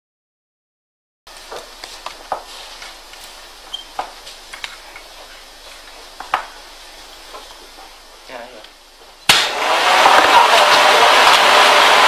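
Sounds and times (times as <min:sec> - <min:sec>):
low room noise: 0:01.3 - 0:12.0.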